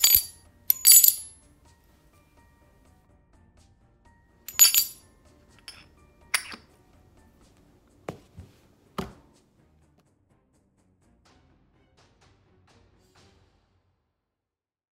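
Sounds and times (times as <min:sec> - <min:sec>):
brass clinking: 0:00.0 - 0:01.4, 0:04.5 - 0:05.0, 0:05.6 - 0:06.6.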